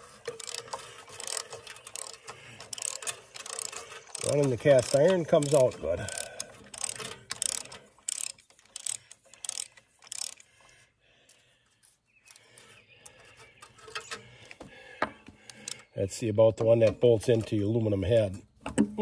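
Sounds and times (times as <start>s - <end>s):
socket ratchet clicking: 0.3s - 10.4s.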